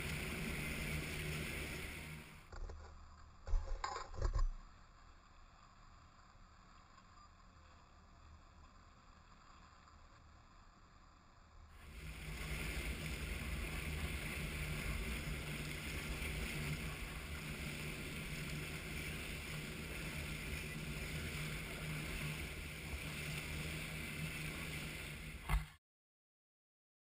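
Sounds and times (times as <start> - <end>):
churning boat wake: 0.0 - 2.5, 11.8 - 25.8
motorboat engine drone: 0.0 - 2.6, 11.8 - 25.8.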